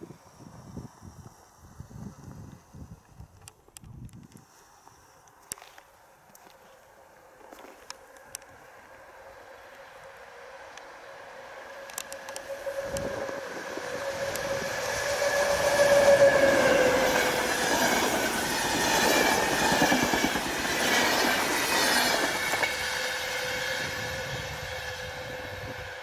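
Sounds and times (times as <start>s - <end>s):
electric locomotive whining: 7.9s - 26.0s
train wheels rumbling and clattering: 11.8s - 26.0s.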